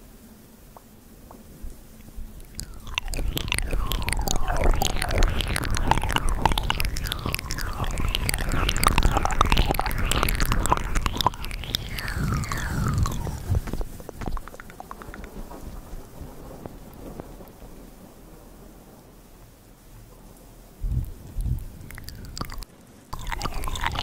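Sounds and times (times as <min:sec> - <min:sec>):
mouth clicks and lip smacks: 0:02.4 - 0:15.8, 0:20.9 - 0:24.0.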